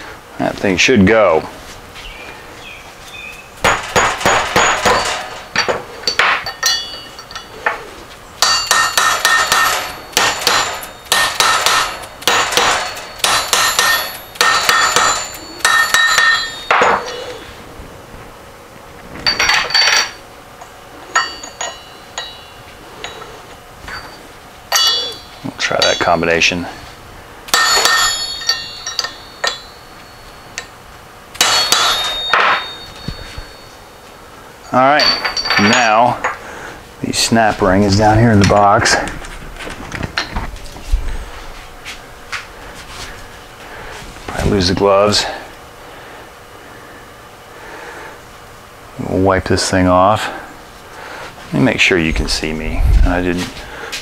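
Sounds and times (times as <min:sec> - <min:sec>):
hammer striking metal: 0:03.6 - 0:07.5, 0:08.4 - 0:17.3, 0:21.1 - 0:23.3, 0:23.9 - 0:26.6, 0:27.5 - 0:30.7, 0:31.4 - 0:33.8.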